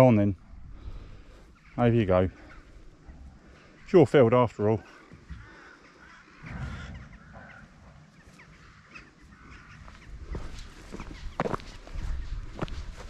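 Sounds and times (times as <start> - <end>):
wind rumble on microphone: 9.6 - 13.0
footsteps on dirt track: 9.7 - 13.0.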